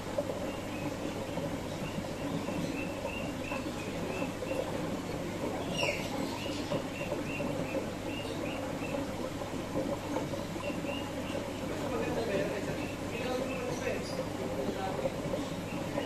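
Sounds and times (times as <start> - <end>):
flowing water: 0.0 - 16.0
birds chirping: 0.2 - 16.0.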